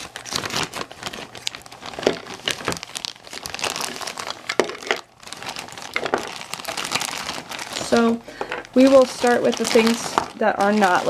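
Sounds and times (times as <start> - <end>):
plastic bag crinkling: 0.0 - 11.0
scissors cutting plastic: 0.0 - 11.0.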